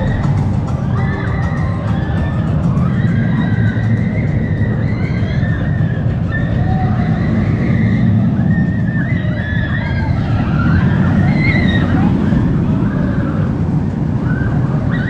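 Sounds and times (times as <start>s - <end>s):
roller coaster rumbling on track: 0.0s - 15.0s
wind buffeting microphone: 0.0s - 15.0s.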